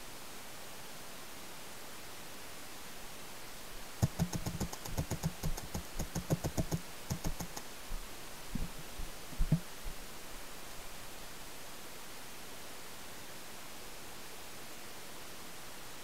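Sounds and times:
paintball marker firing: 4.0 - 7.7.

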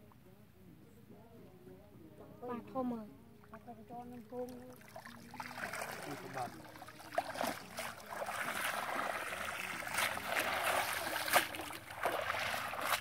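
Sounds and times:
muddy water sloshing and splashing: 4.3 - 13.0
sharp splashes: 4.7 - 13.0.

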